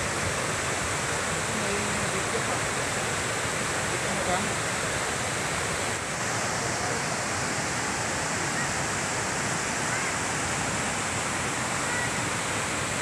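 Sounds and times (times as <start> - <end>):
stream rushing over boulders: 0.0 - 13.0.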